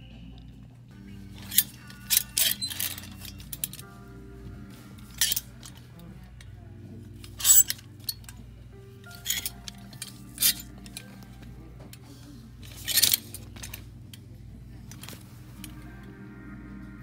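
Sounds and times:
faint music: 0:00.0 - 0:17.0
plastic hangers clacking on a rack: 0:01.3 - 0:03.9, 0:05.0 - 0:06.5, 0:07.1 - 0:15.8.

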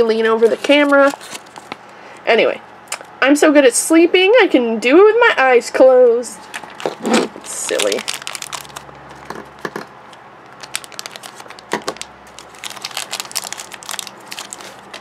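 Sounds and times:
plastic wrapper crinkling: 0:00.2 - 0:01.9, 0:06.4 - 0:09.7, 0:10.4 - 0:15.0.

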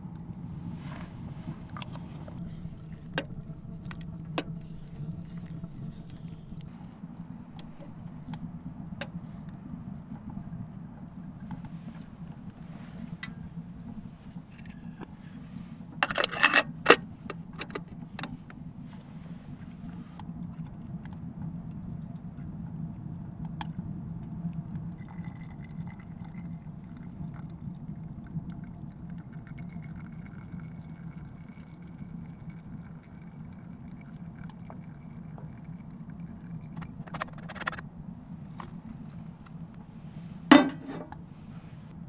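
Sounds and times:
low rumble: 0:00.0 - 0:23.0
metal kettle clinking: 0:16.0 - 0:18.6, 0:36.8 - 0:37.8, 0:40.5 - 0:41.2.

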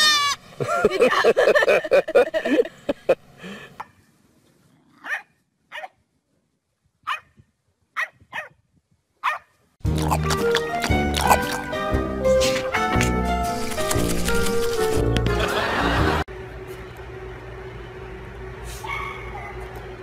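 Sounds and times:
dog barking: 0:05.0 - 0:06.0, 0:07.1 - 0:07.3, 0:08.0 - 0:08.6, 0:09.2 - 0:09.5.

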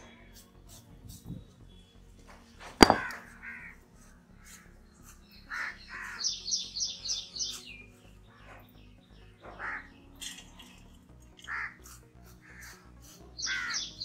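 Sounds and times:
stone roller knocking on stone slab: 0:02.7 - 0:03.2
crows cawing: 0:02.9 - 0:03.8, 0:05.5 - 0:06.4, 0:09.4 - 0:10.0, 0:11.4 - 0:12.8, 0:13.4 - 0:13.9
bird chirping: 0:04.4 - 0:11.7, 0:13.4 - 0:14.0.

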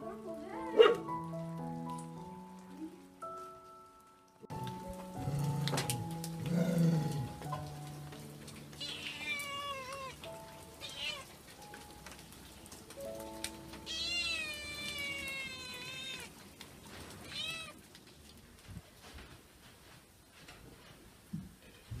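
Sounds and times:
cat meowing: 0:08.7 - 0:11.4, 0:13.8 - 0:16.4, 0:17.2 - 0:17.8.

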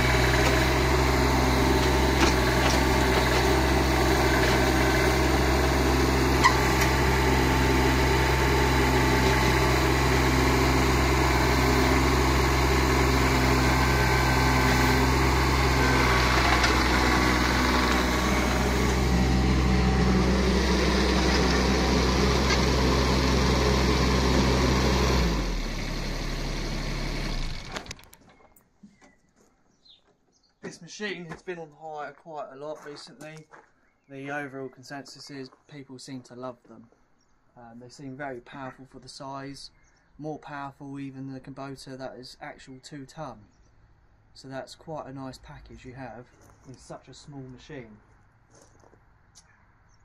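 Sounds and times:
diesel engine running: 0:00.0 - 0:28.2.

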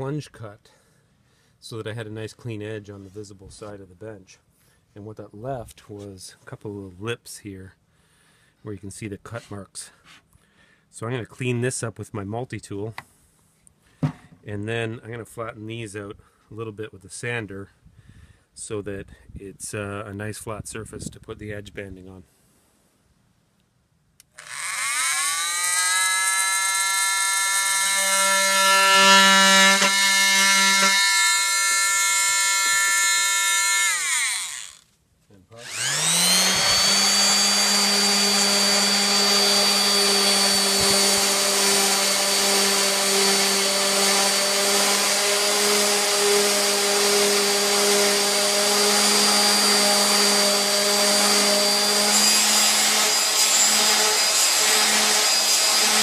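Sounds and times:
oscillating multi-tool whining: 0:24.3 - 0:34.9, 0:35.6 - 0:56.0
random-orbit sander running: 0:24.4 - 0:34.8, 0:35.6 - 0:56.0.

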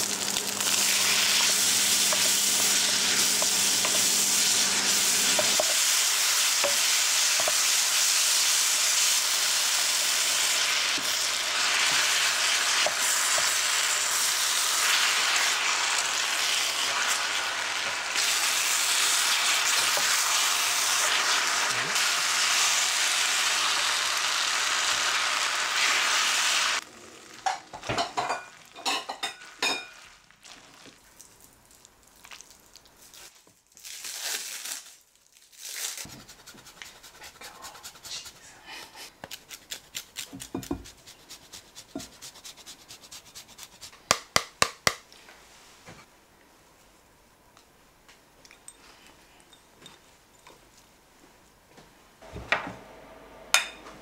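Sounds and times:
sauce sizzling in a frying pan: 0:00.0 - 0:30.9
wooden spoon stirring: 0:36.1 - 0:38.6.

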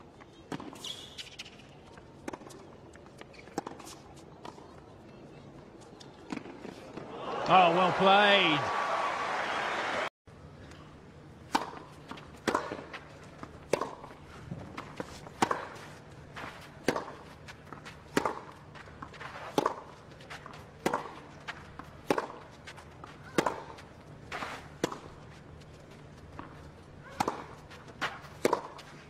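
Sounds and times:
tennis racket hitting ball: 0:11.5 - 0:25.2, 0:26.3 - 0:29.0.

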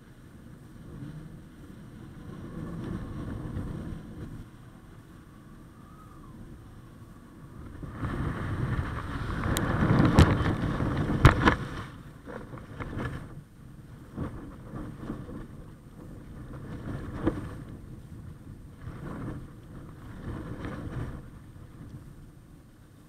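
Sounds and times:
wind rushing over camera: 0:00.0 - 0:23.0
kite slapping into water: 0:07.6 - 0:22.2.

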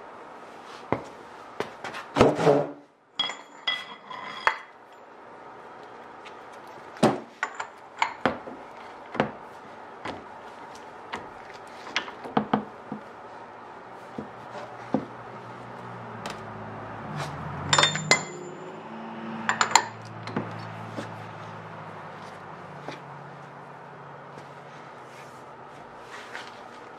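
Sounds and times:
low steady hum: 0:00.0 - 0:26.9
socket wrench metal clinks: 0:17.7 - 0:18.6.

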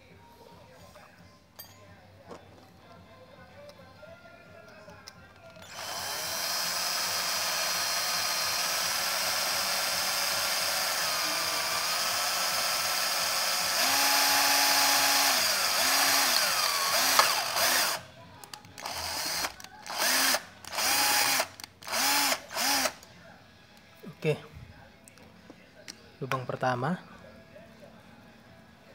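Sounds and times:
cordless drill boring metal: 0:05.6 - 0:18.0, 0:18.8 - 0:23.0.

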